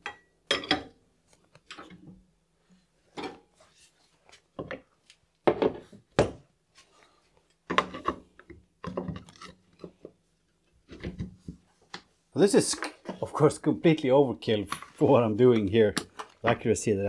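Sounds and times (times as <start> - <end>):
wooden pieces and tools knocking: 4.6 - 6.4, 7.7 - 10.2.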